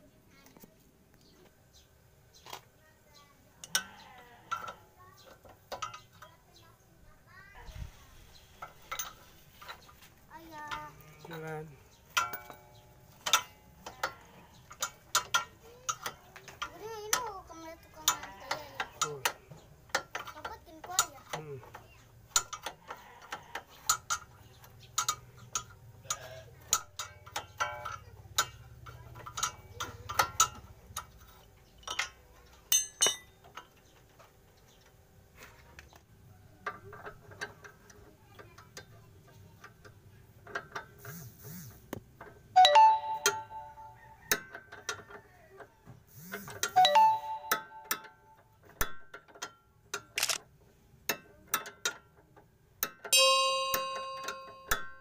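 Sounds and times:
ringing clank of metal: 32.7s - 33.4s, 53.1s - 55.0s.

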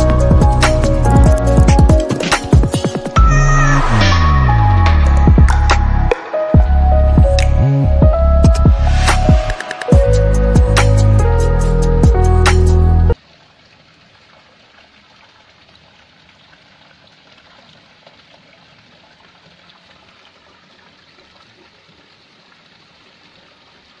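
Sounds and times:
water trickling: 13.1s - 24.0s.

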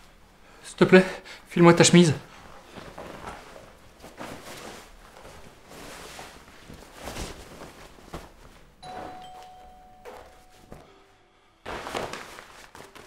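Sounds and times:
fabric rustling: 2.3s - 11.0s, 11.6s - 13.0s
doorbell chime: 8.8s - 11.7s.

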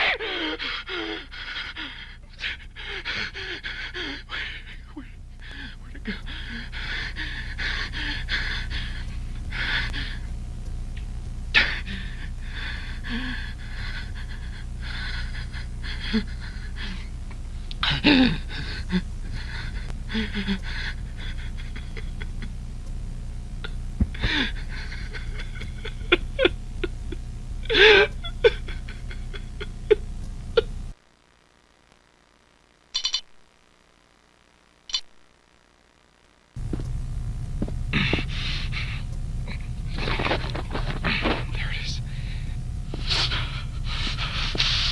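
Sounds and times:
man panting and gasping: 0.0s - 10.2s, 37.9s - 39.0s, 42.1s - 44.9s
steady low hum: 0.0s - 44.9s
scattered clicks: 32.9s - 33.5s, 34.8s - 35.2s.

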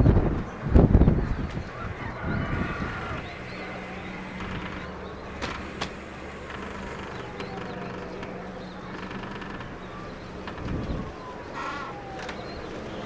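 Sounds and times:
distant engine drone: 0.0s - 13.0s
wind rumble on microphone: 0.0s - 13.0s.

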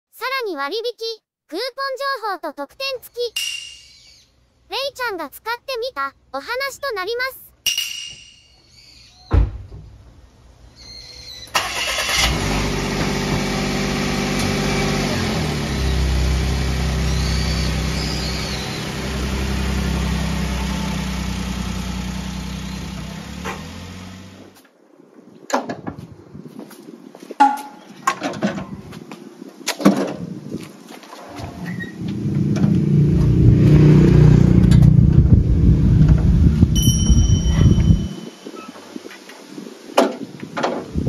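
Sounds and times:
thump: 9.3s - 10.0s
small truck engine running: 11.6s - 24.6s.

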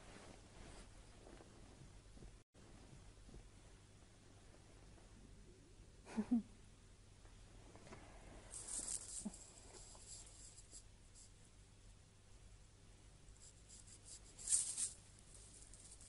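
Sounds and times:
faint rustling handling noise: 0.0s - 5.2s, 7.6s - 11.6s, 13.3s - 16.0s
low steady hum: 0.0s - 16.0s.

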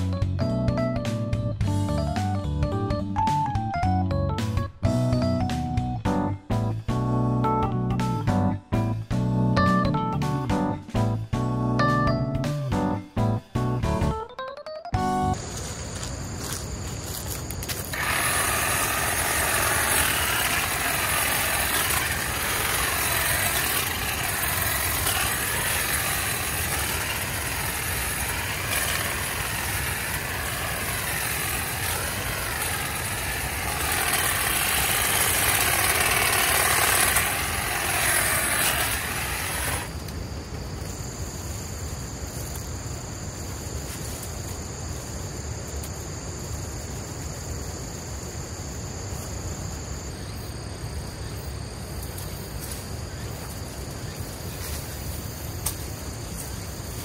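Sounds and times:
insects buzzing: 15.0s - 57.0s
hedge trimmer cutting brush: 17.6s - 40.2s.

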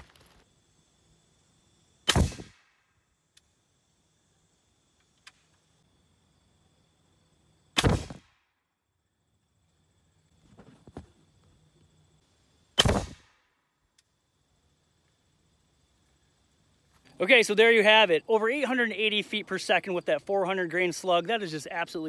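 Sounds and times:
air rifle shots: 2.0s - 2.7s, 7.8s - 8.4s, 12.8s - 13.4s.

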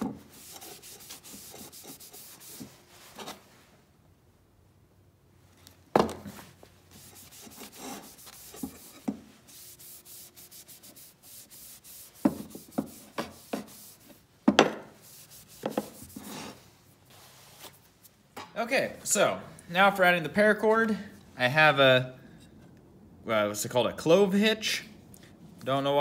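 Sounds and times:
rag rubbing on wooden handle: 0.0s - 3.4s, 6.9s - 14.2s, 14.9s - 16.6s.

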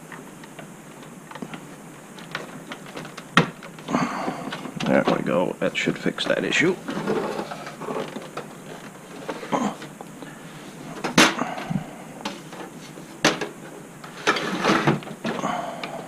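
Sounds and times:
computer tower knocks and clunks: 1.4s - 5.4s, 11.0s - 15.5s.

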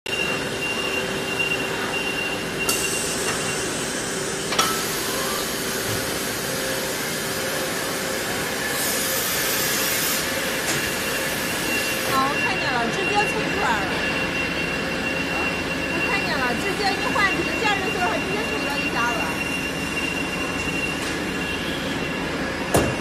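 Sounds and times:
hiss: 8.6s - 11.0s
machining line din: 10.3s - 23.0s
constant hum: 12.1s - 23.0s.

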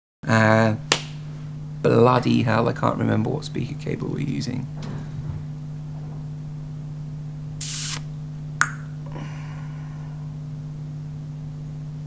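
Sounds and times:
steady low hum: 0.2s - 12.0s
short hiss: 7.6s - 8.1s.

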